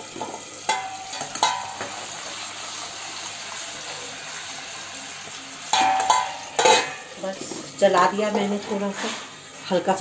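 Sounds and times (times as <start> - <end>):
chickpeas frying in oil: 0.0 - 10.0
metal lid clinking: 0.2 - 2.1, 5.7 - 7.1.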